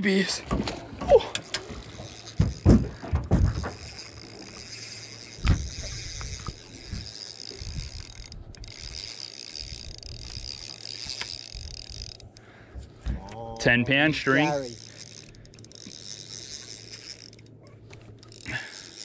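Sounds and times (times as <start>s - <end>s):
fishing reel gears whirring: 0.9s - 12.6s, 13.2s - 19.0s
knocks: 2.4s - 3.8s.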